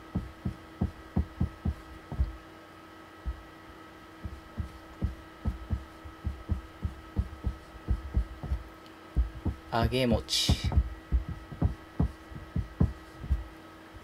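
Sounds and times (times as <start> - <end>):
marker pen on whiteboard: 0.0 - 2.4, 4.2 - 8.6, 9.2 - 13.5
faint steady hum: 0.0 - 14.0.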